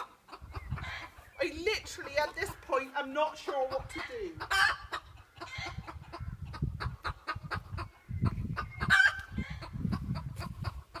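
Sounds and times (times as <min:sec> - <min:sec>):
chickens clucking: 0:00.0 - 0:11.0
chicken squawk: 0:03.9 - 0:11.0.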